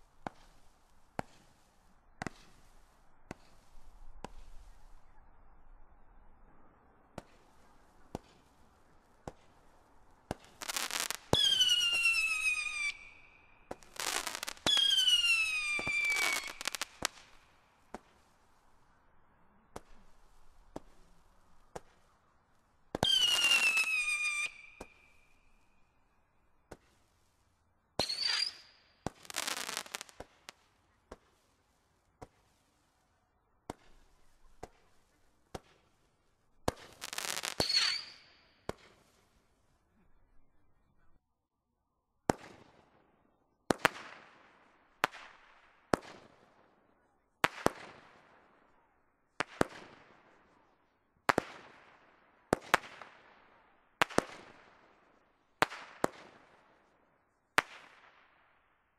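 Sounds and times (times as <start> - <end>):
firework launch pops: 0.2 - 5.0, 19.7 - 20.0, 20.7 - 21.0, 33.7 - 34.9, 36.6 - 39.1
whistling firework screamers: 10.6 - 16.9, 23.0 - 25.3, 28.0 - 29.9, 37.1 - 38.4.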